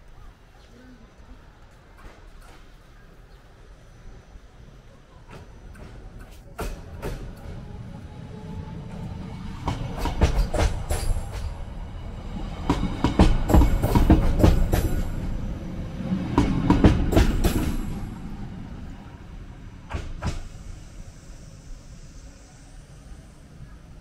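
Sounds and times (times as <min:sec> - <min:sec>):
train rumbling past: 0:01.2 - 0:24.0
wheels clacking over rail joints: 0:05.2 - 0:07.8, 0:09.2 - 0:19.0.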